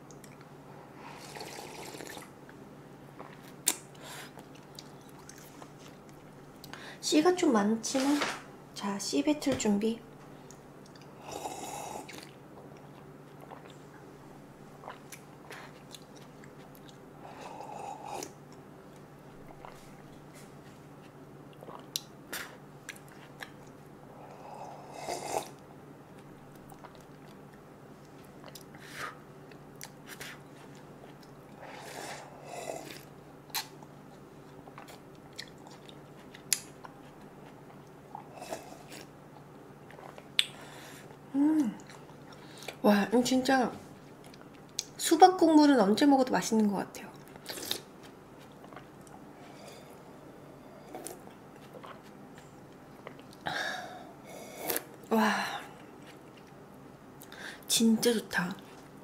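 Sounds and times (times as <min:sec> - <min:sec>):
soft sips and swallows: 0:01.2 - 0:02.3, 0:11.9 - 0:14.1, 0:19.4 - 0:23.8, 0:47.2 - 0:53.4
sharp mouth clicks: 0:40.4 - 0:40.6.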